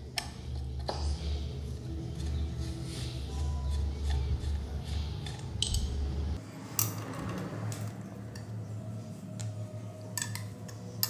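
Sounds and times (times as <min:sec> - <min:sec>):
metallic wrench clinks on bolts: 0:05.3 - 0:06.0.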